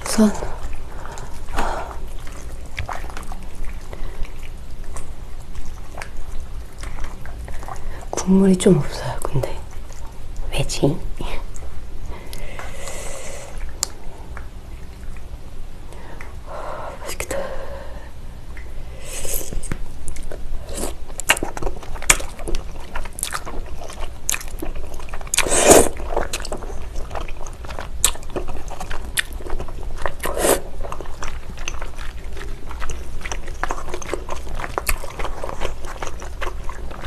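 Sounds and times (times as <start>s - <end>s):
chewing: 0.0s - 10.5s, 11.2s - 16.4s, 18.5s - 37.0s
noodles being slurped: 24.3s - 37.0s.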